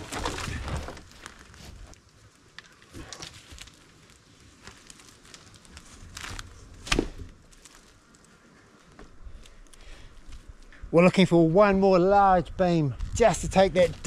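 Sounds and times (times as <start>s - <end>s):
dry leaves crackling underfoot: 1.0s - 10.7s.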